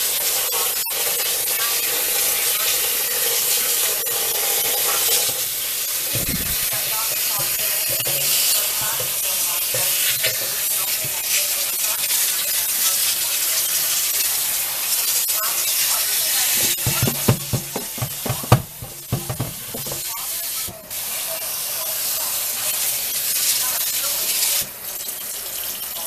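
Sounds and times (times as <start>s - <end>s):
sink sprayer hissing: 0.0s - 26.0s
hands stirring beans: 16.6s - 20.1s
sharp knocks: 16.6s - 20.1s.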